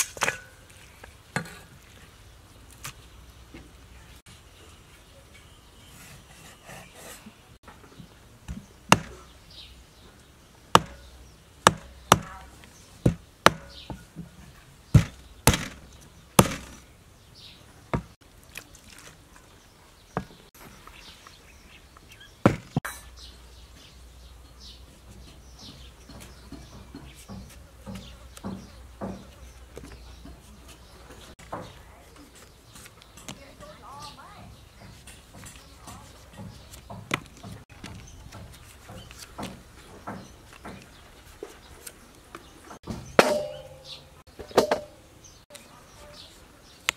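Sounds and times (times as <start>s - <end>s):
cleaver chopping on wooden board: 8.5s - 9.3s, 10.7s - 12.4s, 13.1s - 14.0s, 15.0s - 15.8s, 16.4s - 16.8s.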